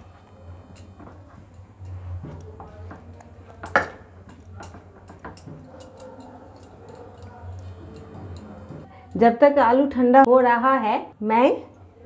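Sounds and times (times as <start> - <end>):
steel glass tapping on a plate: 0.7 - 8.9.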